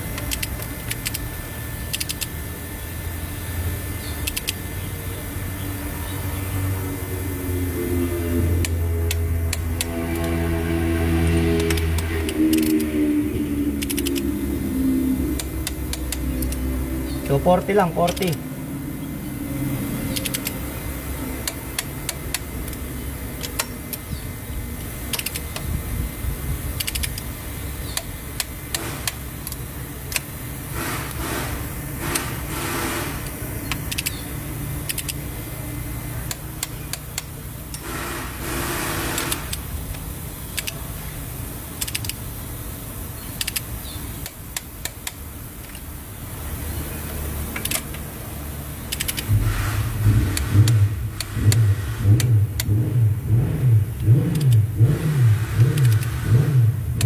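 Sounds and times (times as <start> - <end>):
steady low rumble: 0.0 - 43.5, 44.1 - 57.0
torque wrench clicks: 0.1 - 1.3, 1.9 - 2.4, 4.2 - 4.6, 8.6 - 10.3, 11.6 - 12.9, 13.8 - 14.4, 15.2 - 18.4, 20.1 - 20.6, 21.4 - 22.8, 23.4 - 24.2, 24.8 - 25.7, 26.7 - 30.4, 31.0 - 35.3, 36.2 - 38.4, 39.0 - 41.0, 41.6 - 42.3, 43.3 - 46.0, 47.4 - 48.1, 48.8 - 53.0, 54.0 - 55.0, 55.6 - 57.0
wrench ratcheting: 0.2 - 1.3, 1.9 - 2.4, 4.2 - 4.6, 8.6 - 10.4, 11.5 - 12.9, 13.8 - 14.4, 15.3 - 18.4, 20.0 - 20.6, 24.8 - 25.7, 26.7 - 27.3, 30.9 - 34.2, 34.8 - 35.3, 36.2 - 40.8, 41.8 - 42.2, 43.4 - 45.9, 47.4 - 48.1, 48.8 - 53.4, 54.0 - 55.0, 55.6 - 57.0.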